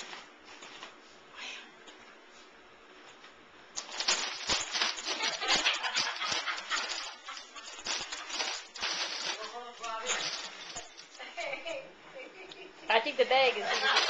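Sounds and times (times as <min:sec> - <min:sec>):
chip bag crinkling: 0:03.8 - 0:11.2, 0:13.6 - 0:14.0.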